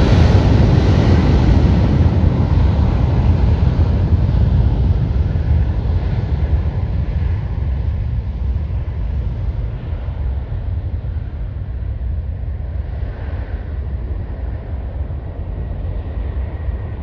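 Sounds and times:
jet engines at takeoff: 0.0 - 17.0.

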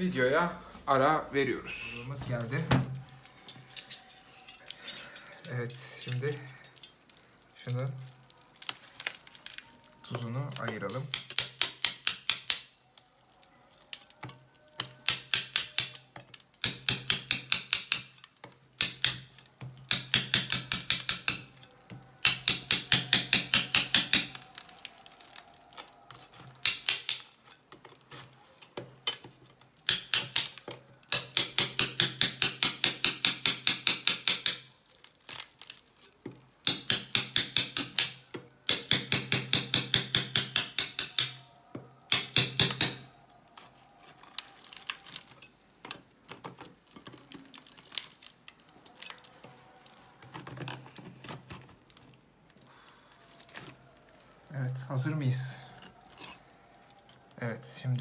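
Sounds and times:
metal spoon tapping salt crust: 9.4 - 12.7, 13.9 - 21.6, 22.2 - 25.0, 25.8 - 28.3, 29.0 - 34.7, 36.6 - 41.4.

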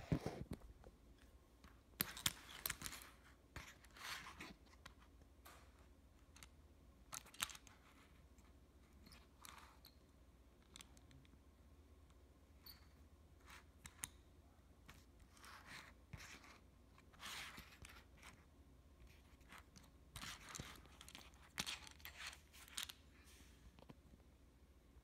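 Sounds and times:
low steady hum: 0.0 - 25.0
toy handling clicks and scrapes: 1.6 - 10.0, 14.9 - 23.9.

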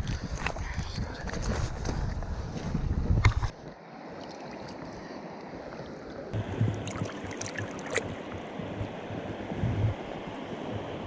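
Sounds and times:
river water running: 3.5 - 11.0
small splashes and bumps: 6.6 - 8.2.

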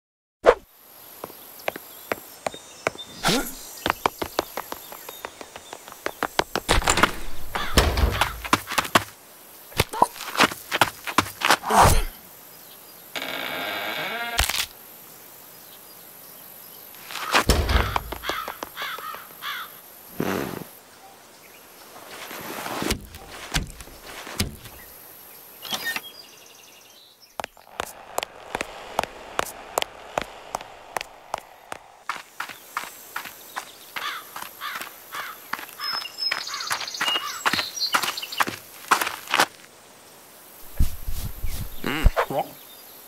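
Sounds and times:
footsteps: 1.2 - 9.1, 9.8 - 11.6, 17.0 - 19.4, 22.1 - 24.9, 27.4 - 39.7, 40.6 - 42.2
scuffles and thumps: 1.2 - 9.1, 17.0 - 19.2, 22.1 - 24.9, 40.6 - 42.3.

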